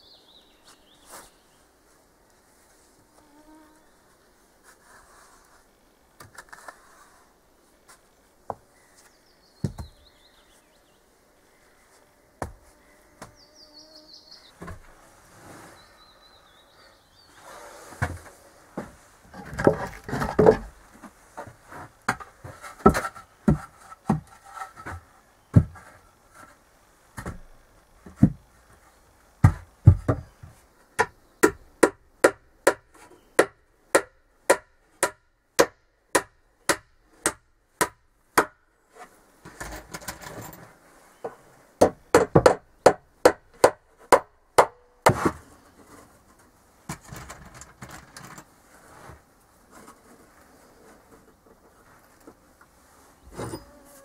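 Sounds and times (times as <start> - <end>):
hammering nails into wood: 31.0 - 38.6, 41.8 - 45.3.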